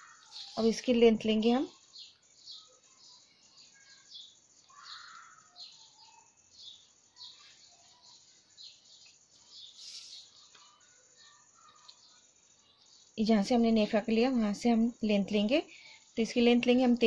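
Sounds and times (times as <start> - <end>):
faint birds chirping: 0.0 - 17.0
soft rustle: 0.1 - 0.9
brief hiss: 9.8 - 10.3.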